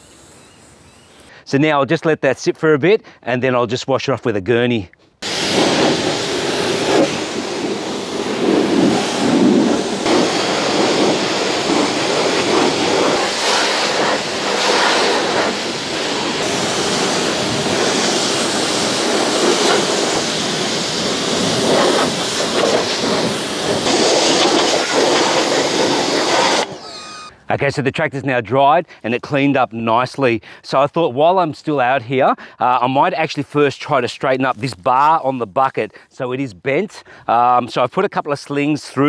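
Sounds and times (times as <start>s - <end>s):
pressure washer spraying metal: 5.2s - 27.3s.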